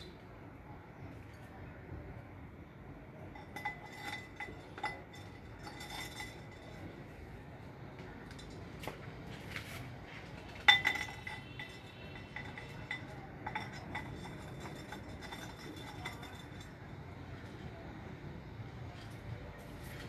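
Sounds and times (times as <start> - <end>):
objects clinking in clay flowerpot: 3.2 - 7.3, 8.0 - 17.8.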